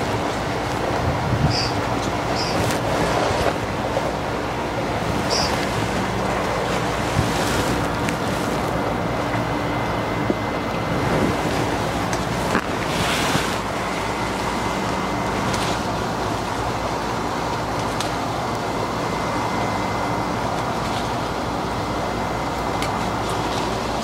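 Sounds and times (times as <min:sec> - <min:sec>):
wind rumbling on microphone: 0:00.0 - 0:14.8.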